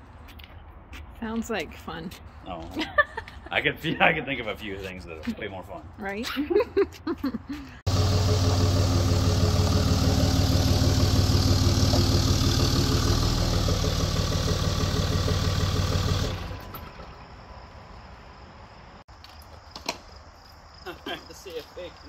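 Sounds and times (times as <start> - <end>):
diesel engine idling: 7.8 - 17.4.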